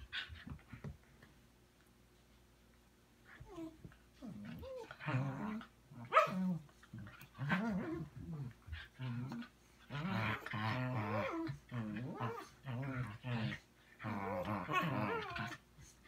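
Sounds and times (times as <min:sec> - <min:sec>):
dogs play-growling: 0:03.3 - 0:16.0.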